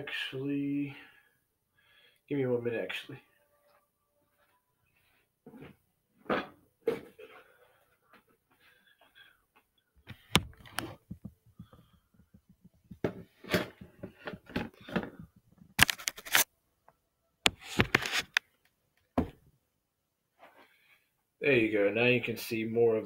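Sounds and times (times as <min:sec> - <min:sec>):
camera handling knocks and clicks: 0:10.1 - 0:11.7.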